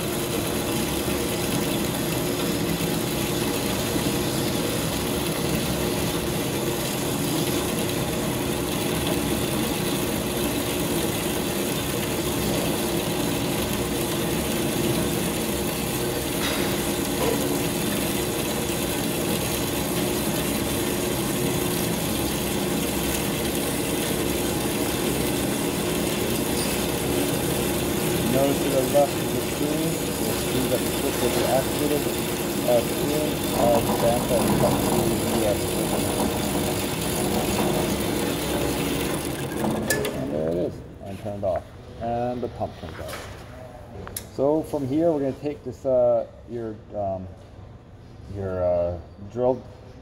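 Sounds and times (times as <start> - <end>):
coolant pump running: 0.0 - 47.6.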